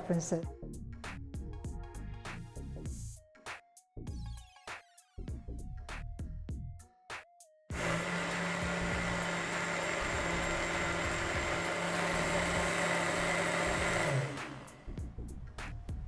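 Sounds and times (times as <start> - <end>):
blender motor winding down: 7.7 - 15.0
blender running: 7.7 - 15.0.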